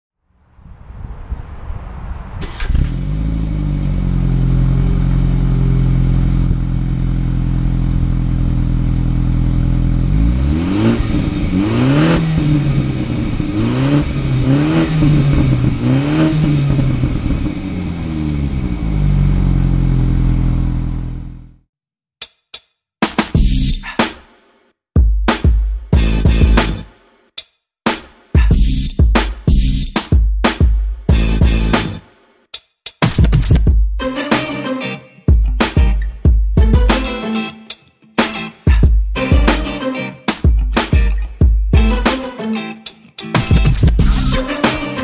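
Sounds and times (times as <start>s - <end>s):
car engine idling and revving: 2.4s - 21.6s, 31.1s - 32.0s.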